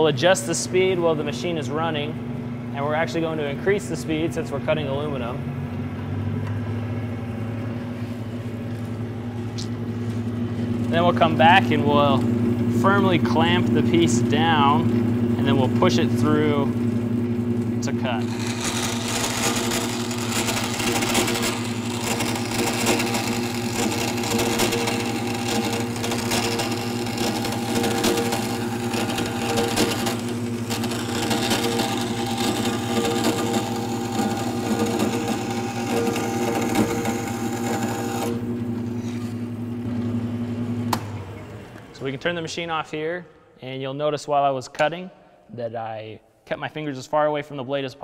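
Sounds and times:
bandsaw motor hum: 0.0 - 42.7
bandsaw cutting metal: 18.0 - 39.4.

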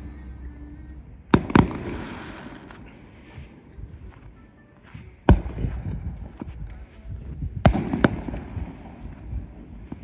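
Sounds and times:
firework bangs: 1.3 - 3.0, 7.6 - 10.0.

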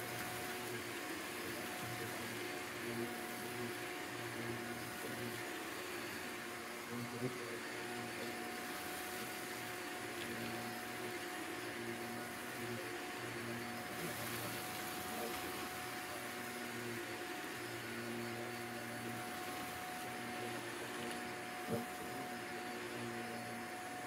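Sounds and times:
upright vacuum cleaner running: 0.0 - 24.0.

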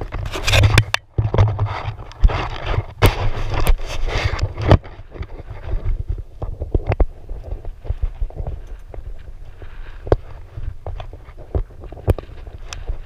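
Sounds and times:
camera handling rubbing and scraping: 0.0 - 9.0.

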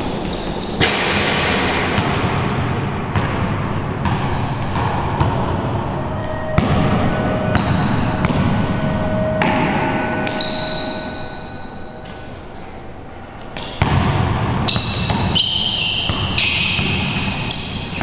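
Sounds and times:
basketball bouncing on court floor: 0.2 - 5.6, 13.6 - 18.0
high steady tones: 5.3 - 13.4.

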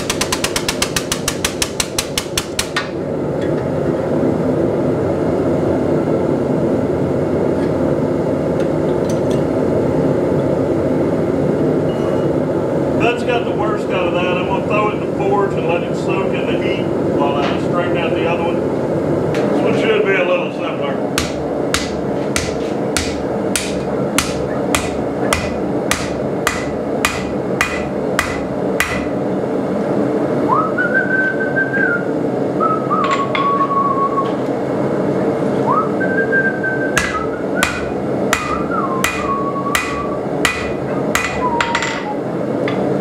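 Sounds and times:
steady background roar: 0.0 - 43.0
hammer ringing on anvil: 21.2 - 29.1, 37.0 - 42.1
person whistling: 30.5 - 34.4, 35.6 - 37.9, 38.5 - 40.2, 41.4 - 42.2.

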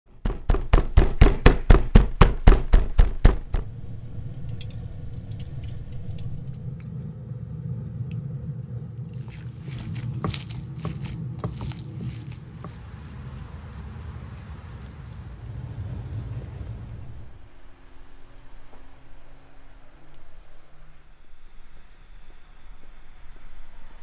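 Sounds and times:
loud heavy knocks: 0.2 - 3.7
low rumble: 3.0 - 24.0
hands kneading minced meat: 9.1 - 15.8.

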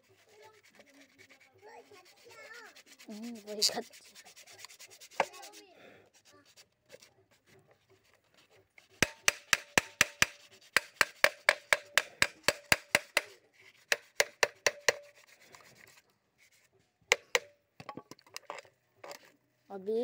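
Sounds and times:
hammer tapping on metal: 9.0 - 13.3, 13.9 - 15.1, 17.1 - 17.5.

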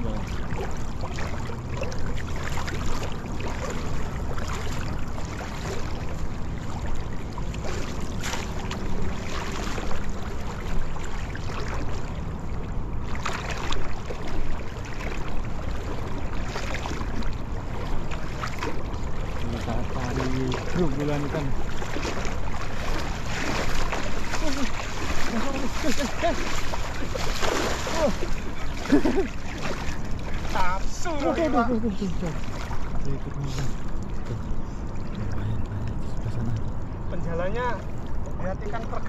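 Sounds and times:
water sloshing around legs: 0.0 - 39.0
water splashes: 0.0 - 39.0.

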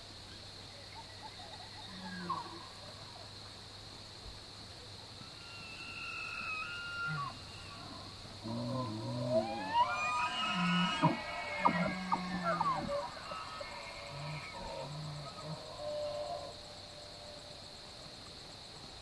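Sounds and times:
elk bugling: 5.3 - 17.0.

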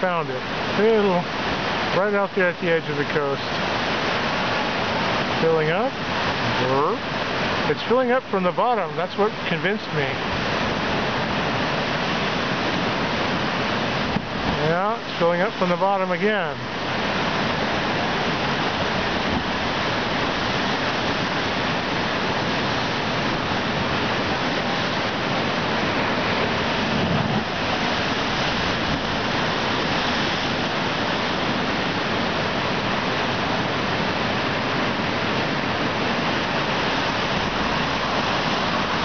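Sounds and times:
heavy surf roaring over rocks: 0.0 - 39.0.

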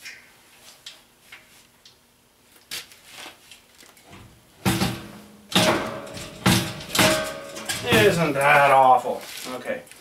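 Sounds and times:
loud metal clang and scrape: 4.7 - 8.4.

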